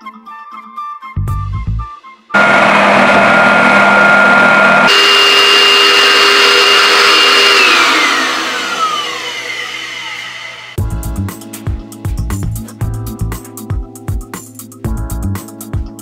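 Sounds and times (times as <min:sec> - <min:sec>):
vacuum cleaner motor whine: 0:02.4 - 0:10.8.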